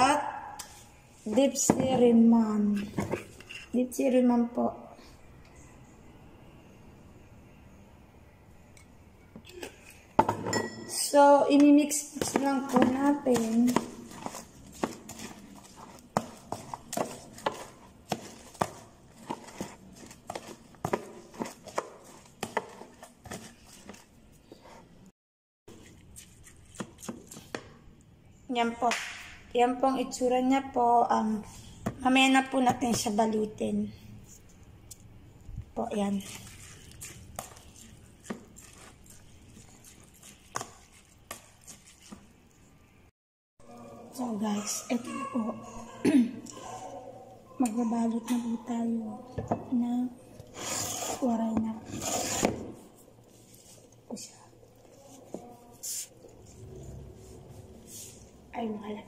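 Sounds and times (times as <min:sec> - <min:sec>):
spoon stirring filling: 0:08.7 - 0:24.9, 0:25.7 - 0:27.8, 0:35.8 - 0:43.0
rice mixed in plastic tub: 0:11.2 - 0:24.9, 0:35.7 - 0:42.8, 0:50.4 - 0:58.6.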